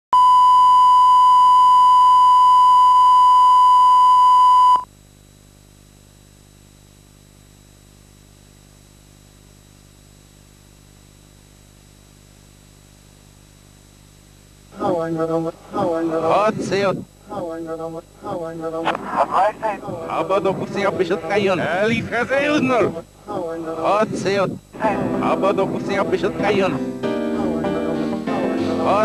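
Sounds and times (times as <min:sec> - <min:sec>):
steady pure beep: 0:00.1 - 0:04.9
faint hiss and low hum: 0:04.8 - 0:29.0.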